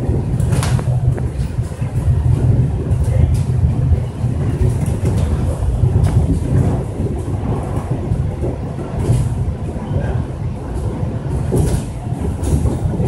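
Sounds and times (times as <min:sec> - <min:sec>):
monorail train rumbling: 0:00.0 - 0:13.0.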